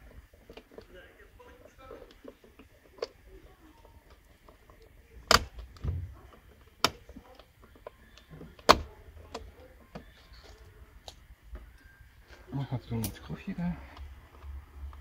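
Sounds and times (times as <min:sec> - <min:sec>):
plastic clips clicking and snapping: 0:03.8 - 0:10.2.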